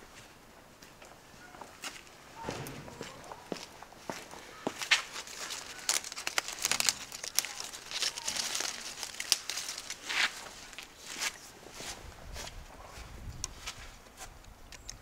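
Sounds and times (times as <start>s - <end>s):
leaves rustling and crinkling: 0.0s - 15.0s
leaves snapping off shrub: 4.8s - 10.9s.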